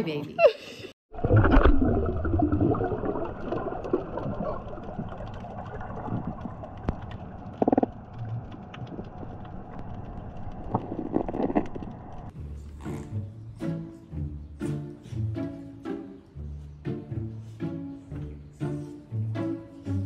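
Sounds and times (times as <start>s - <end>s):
muffled underwater rumbling wash: 1.1s - 12.3s
faint underwater clicks: 3.2s - 12.4s.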